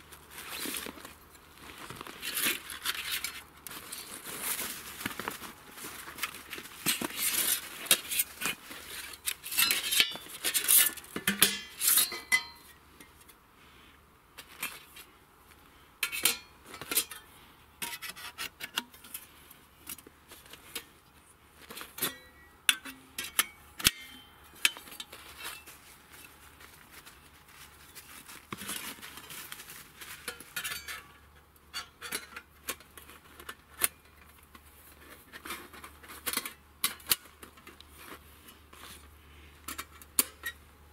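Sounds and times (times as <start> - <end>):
metal grill plates clinking: 11.3 - 12.7.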